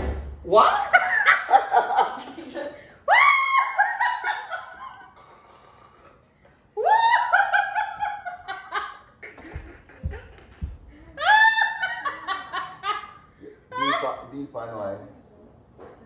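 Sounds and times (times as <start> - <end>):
shrill high-pitched laughter: 6.8 - 14.2
dull thumps: 9.2 - 11.2.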